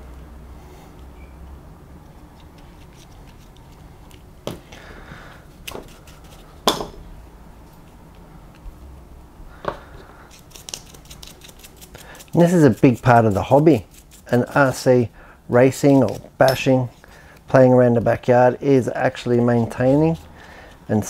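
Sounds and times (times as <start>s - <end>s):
brush scrubbing: 5.5s - 6.6s, 10.3s - 15.0s, 19.2s - 21.0s.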